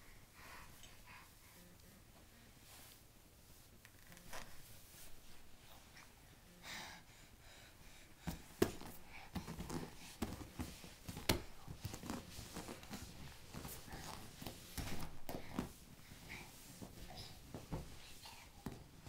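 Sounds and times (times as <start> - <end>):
baby crawling on carpet: 8.2 - 18.8.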